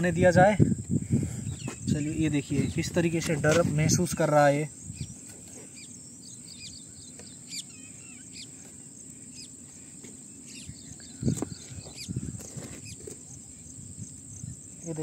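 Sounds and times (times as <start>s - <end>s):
crickets droning: 0.0s - 15.0s
bird chirps: 1.4s - 2.8s, 4.8s - 15.0s.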